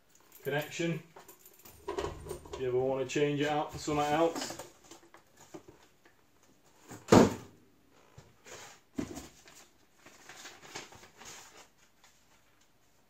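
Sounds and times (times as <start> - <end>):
packaging rustling: 9.3 - 12.6.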